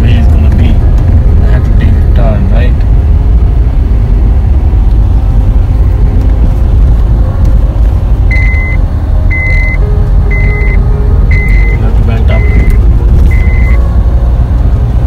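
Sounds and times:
car rumbling on the move: 0.0 - 15.0
short electronic beeps: 8.3 - 13.8.

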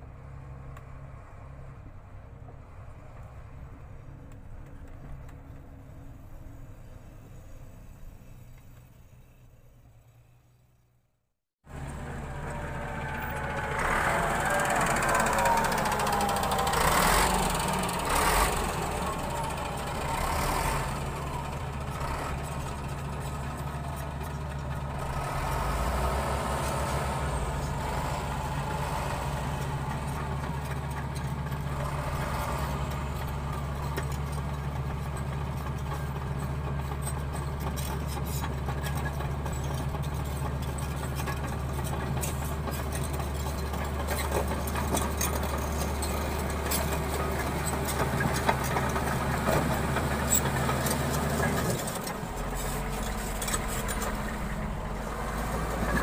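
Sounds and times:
heavy diesel machines droning: 0.0 - 10.9, 11.6 - 56.0
dozer tracks clanking: 11.7 - 56.0.

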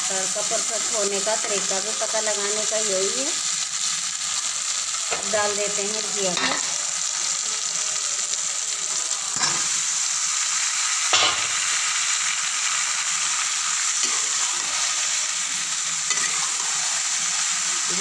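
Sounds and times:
food sizzling in oil: 0.0 - 18.0
knocks in a pan: 11.1 - 11.6.

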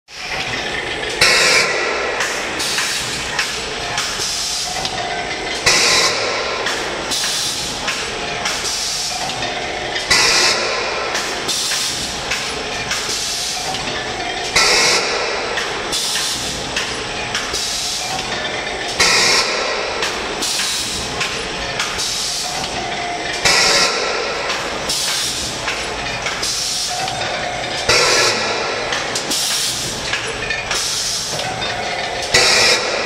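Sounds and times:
conveyor machine clatter: 0.1 - 33.0.

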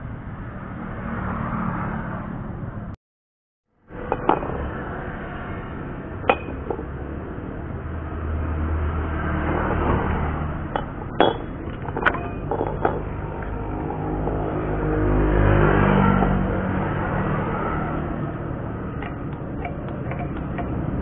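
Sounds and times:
steady background noise: 3.8 - 21.0
metal tubing clinking on concrete: 6.3 - 6.8, 10.7 - 13.5, 19.0 - 20.8.

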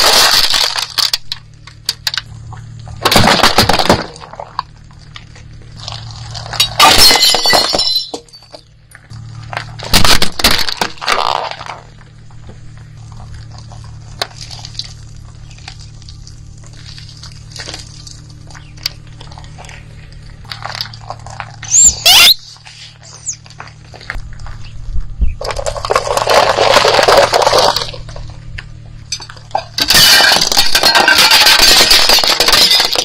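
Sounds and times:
bowls shattering under tyre: 2.9 - 4.7, 5.8 - 8.7, 9.6 - 12.0, 25.4 - 28.4, 29.1 - 33.0.

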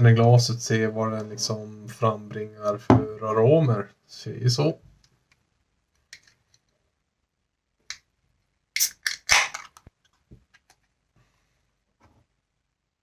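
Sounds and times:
beer can opening crack: 8.8 - 9.9.

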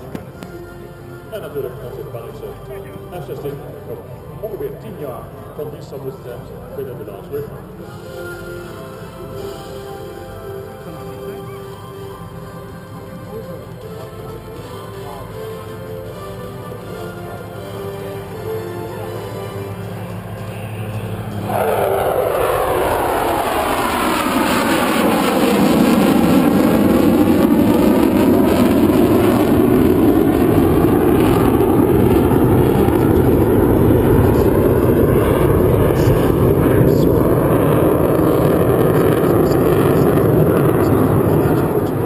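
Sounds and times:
fighter jet flying past: 18.9 - 42.0.

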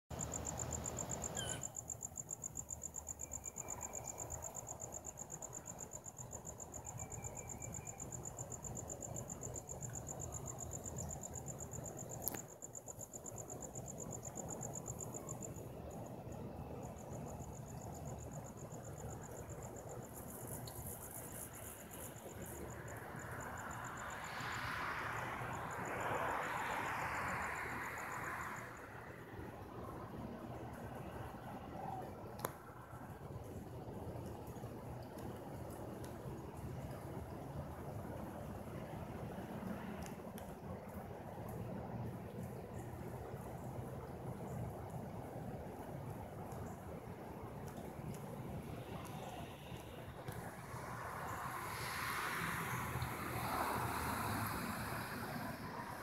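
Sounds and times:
insects trilling: 0.2 - 30.0
broad rush of noise: 21.4 - 56.0.

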